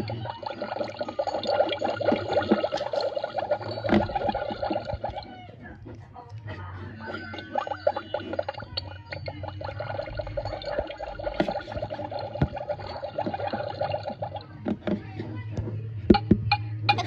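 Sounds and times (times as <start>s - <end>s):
toy cauldron bubbling: 0.0s - 15.2s
plastic cauldron clicks and knocks: 16.1s - 17.0s.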